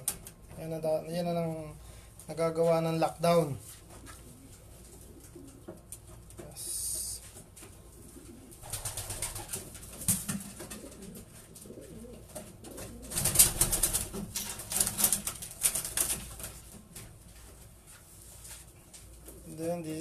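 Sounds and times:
pigeons cooing: 4.0s - 7.0s, 7.8s - 14.3s
wings rustling and flapping: 7.2s - 19.5s.

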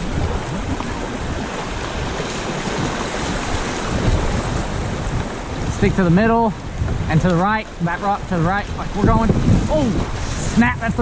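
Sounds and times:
whitewater rapids rushing: 0.0s - 11.0s.

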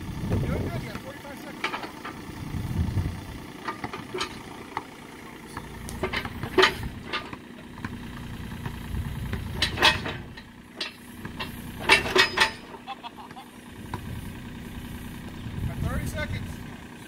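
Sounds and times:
excavator diesel engine running: 0.0s - 17.0s
sharp metal knocks and clanks: 0.8s - 2.2s, 3.6s - 13.0s.

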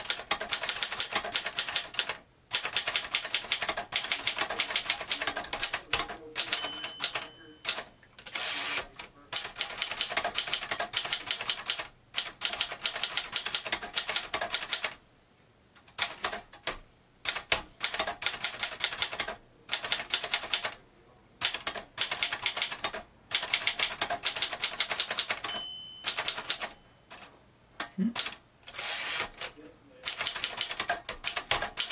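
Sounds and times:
manual typewriter typing: 0.0s - 15.0s, 15.9s - 20.8s, 21.4s - 27.3s, 28.2s - 31.9s
typewriter margin bell ring: 6.4s - 8.6s, 24.9s - 27.3s.

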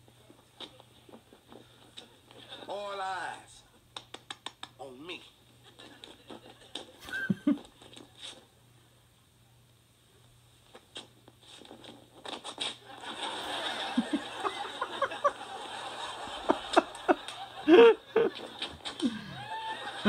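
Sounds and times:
audience laughter through speakers: 12.9s - 20.0s.

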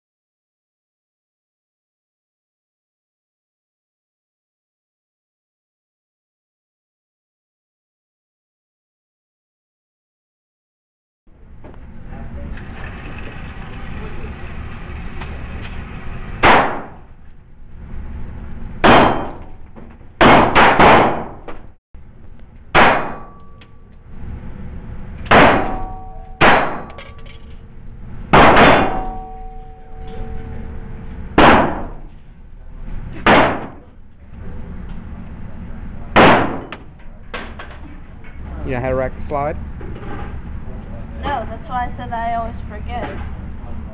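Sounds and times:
handgun shots echoing: 25.3s - 27.1s, 31.4s - 32.0s, 33.3s - 33.8s, 36.2s - 36.8s
faint ringing note: 25.8s - 26.4s, 29.0s - 31.3s.

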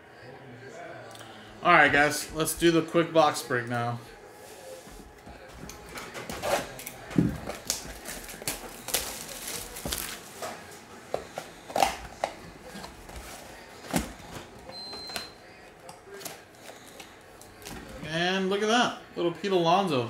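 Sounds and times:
cardboard box rustling and tearing: 6.3s - 10.3s.

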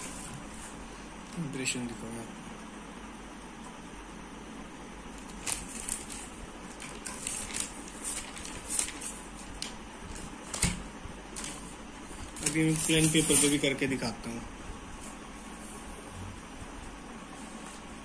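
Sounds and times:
paper rustling and crinkling: 5.2s - 13.8s.

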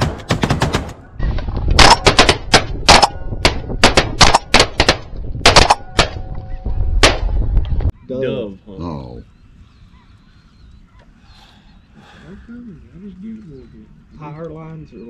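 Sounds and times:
shotgun shots: 0.0s - 1.0s, 1.8s - 6.3s, 7.0s - 7.4s.

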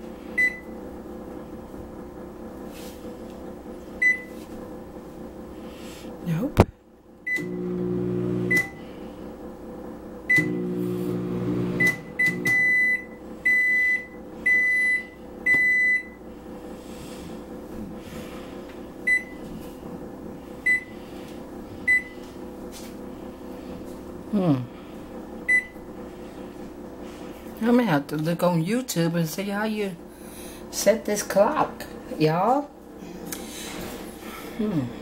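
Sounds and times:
microwave oven humming: 0.0s - 35.0s
longer end-of-cycle beeps: 0.4s - 0.7s, 4.0s - 4.3s, 7.3s - 7.7s, 11.8s - 16.2s, 19.1s - 19.4s, 20.6s - 20.9s, 21.9s - 22.1s, 25.5s - 25.8s.

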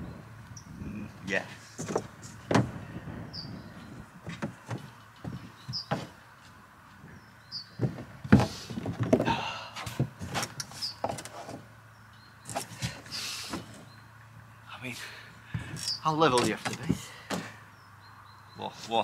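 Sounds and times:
person shifting about: 1.6s - 2.8s, 7.8s - 11.7s.

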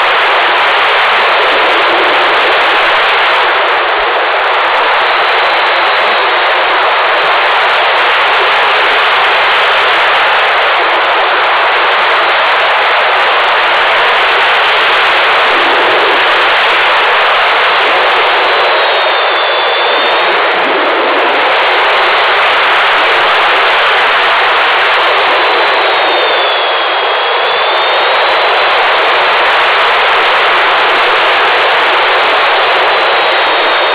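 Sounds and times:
airflow rushing over microphone: 0.0s - 33.9s.

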